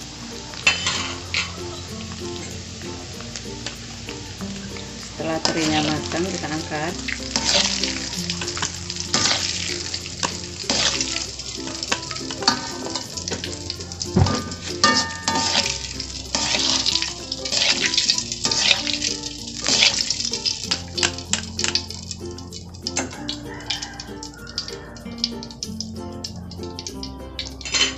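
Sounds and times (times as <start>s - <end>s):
strainer and tongs clinking on pan: 0.0s - 2.6s, 5.2s - 21.9s, 26.8s - 27.9s
fish sizzling in hot oil: 0.0s - 27.9s.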